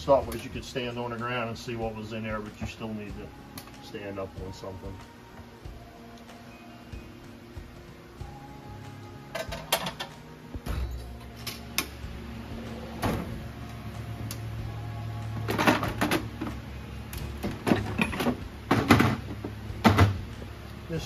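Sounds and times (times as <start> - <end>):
low steady hum: 0.0 - 21.0
metal tools clanking in drawer: 17.6 - 19.2.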